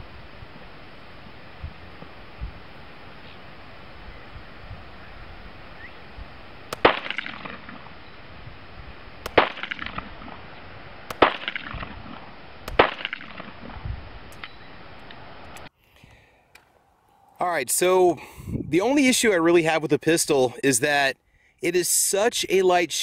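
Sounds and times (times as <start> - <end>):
steady background hiss: 0.0 - 23.0
pistol shots: 6.7 - 7.9, 9.2 - 10.4, 11.1 - 13.7.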